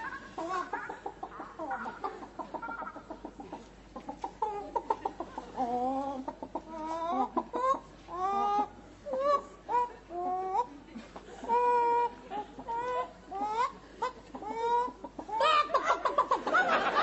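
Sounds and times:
people imitating chicken clucks: 0:00.0 - 0:17.0.

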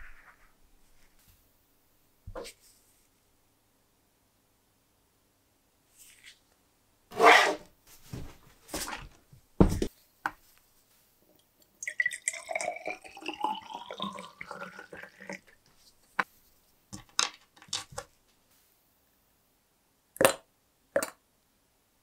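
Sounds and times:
liquid gurgling into glass jar: 0:11.8 - 0:15.6.

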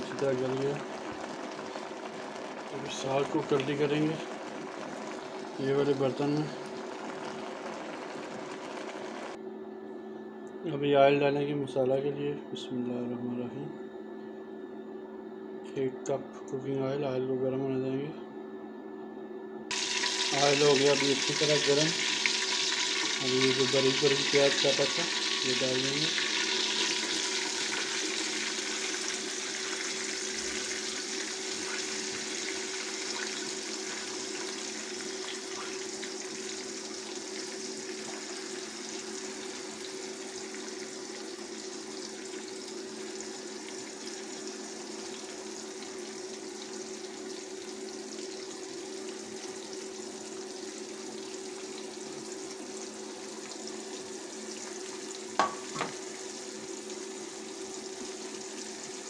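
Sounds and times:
onions sizzling in oil: 0:19.7 - 0:59.0.

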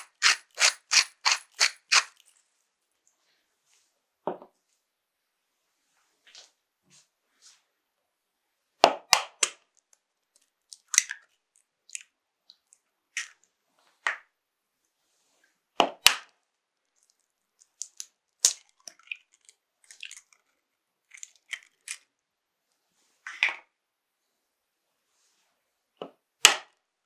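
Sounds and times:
eggshells cracking: 0:00.0 - 0:02.3.

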